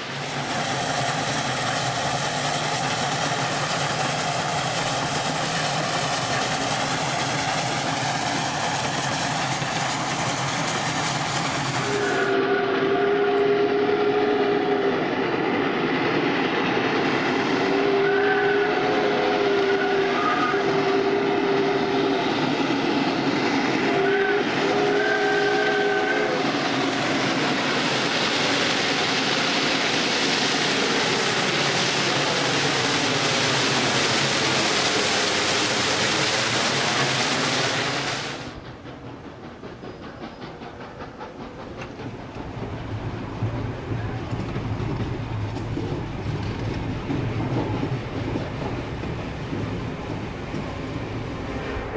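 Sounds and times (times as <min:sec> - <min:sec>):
steam locomotive hissing and chuffing: 0:00.0 - 0:51.9
train rolling: 0:00.0 - 0:51.9
steam whistle blasts: 0:11.8 - 0:15.1, 0:17.6 - 0:22.2, 0:23.8 - 0:26.6.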